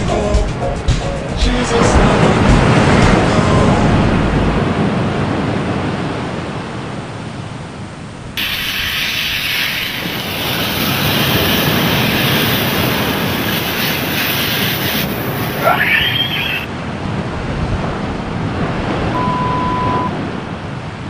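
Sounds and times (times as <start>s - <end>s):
low rumbling noise: 1.6s - 6.3s
food sizzling in a frying pan: 8.4s - 16.6s.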